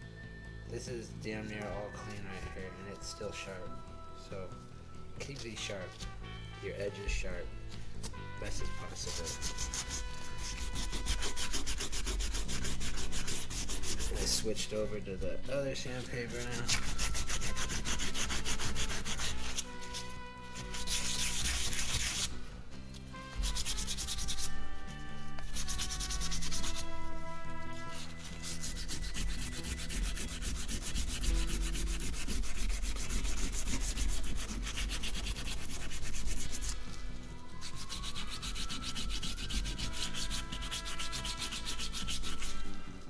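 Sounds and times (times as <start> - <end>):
sandpaper scratching on metal: 8.4 - 14.8, 15.7 - 22.3, 23.3 - 36.8, 37.6 - 42.7.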